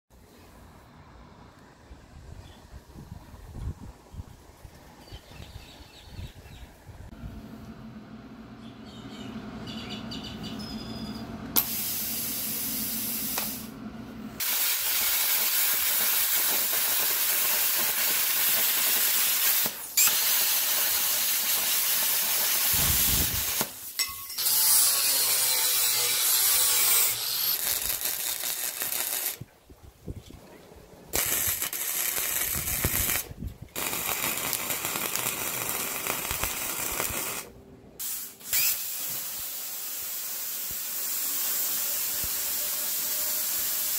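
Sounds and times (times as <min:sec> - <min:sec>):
plasma cutter hissing: 0:11.6 - 0:13.7, 0:14.4 - 0:24.0, 0:31.2 - 0:43.9.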